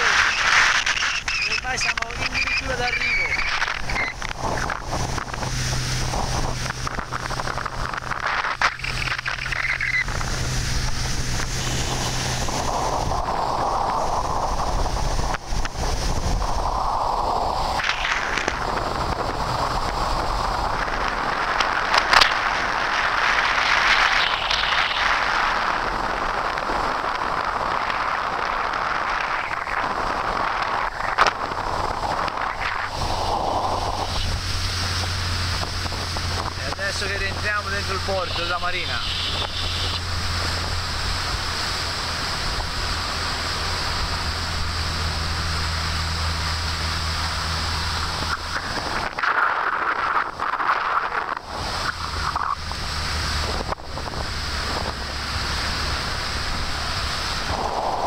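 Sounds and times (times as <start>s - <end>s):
short crackles: 0.0s - 16.6s
boat engine humming: 0.0s - 58.0s
rush of wind and water: 0.0s - 58.0s.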